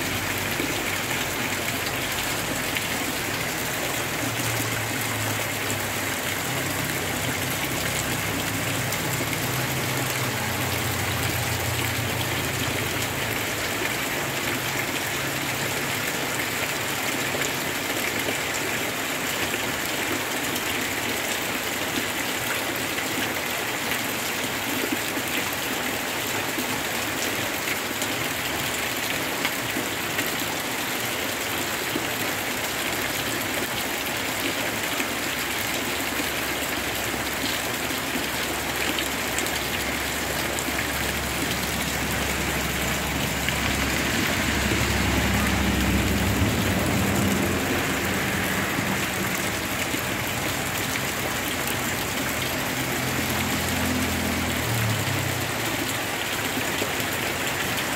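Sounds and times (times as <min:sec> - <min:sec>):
heavy rain falling: 0:00.0 - 0:57.9.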